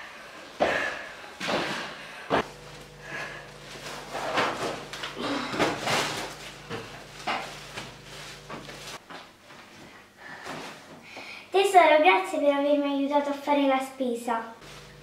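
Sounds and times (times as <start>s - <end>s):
low steady hum: 0.0s - 11.5s, 14.6s - 15.0s
plastic bags rustling: 2.5s - 9.0s, 14.6s - 15.0s.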